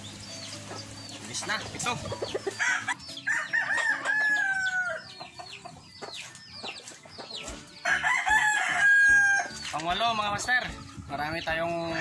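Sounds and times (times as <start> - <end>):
roosters crowing: 1.5 - 6.1, 6.8 - 9.7, 11.7 - 12.0.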